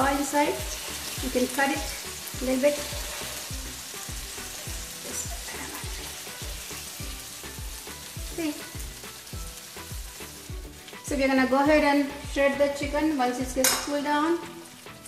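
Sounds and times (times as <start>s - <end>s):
chicken sizzling in a frying pan: 0.0s - 15.0s
soft background music: 0.0s - 15.0s.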